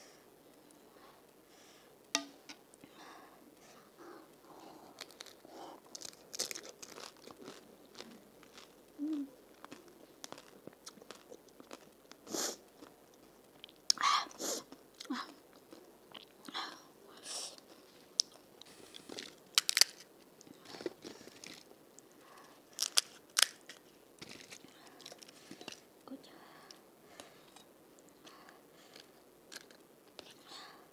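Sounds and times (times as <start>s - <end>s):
chewing and crunching: 4.4s - 14.0s, 17.6s - 25.9s
crisp shell cracking: 4.9s - 12.2s, 19.0s - 25.9s, 29.0s - 29.9s.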